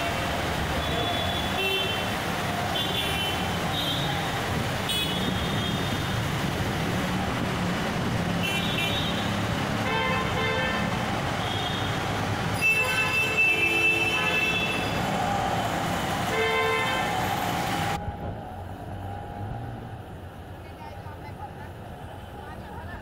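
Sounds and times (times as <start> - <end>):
heavy rain: 0.0 - 20.8
traffic engines: 0.0 - 23.0
vehicle horn toots: 12.6 - 14.9.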